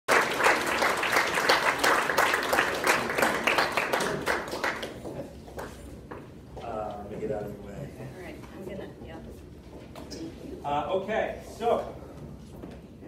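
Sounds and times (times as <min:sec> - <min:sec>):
audience applauding: 0:00.1 - 0:05.7.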